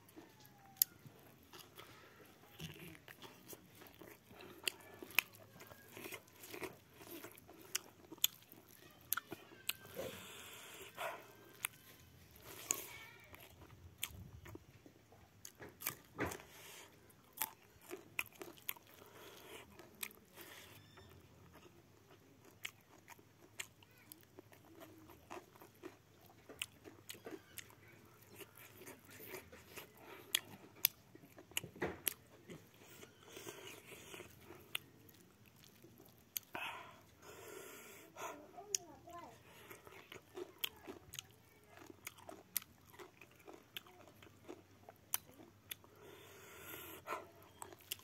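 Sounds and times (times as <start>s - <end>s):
person chewing food: 0.0s - 48.0s.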